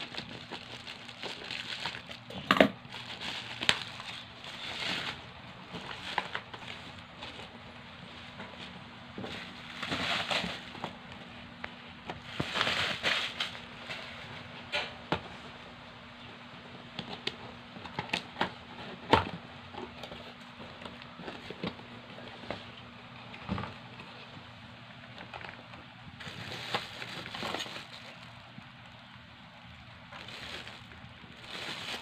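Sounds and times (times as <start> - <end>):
bubble wrap crinkling: 0.0 - 7.6, 8.2 - 11.2, 12.1 - 14.2, 25.0 - 32.0
cardboard box rustling: 26.2 - 28.2, 30.2 - 32.0.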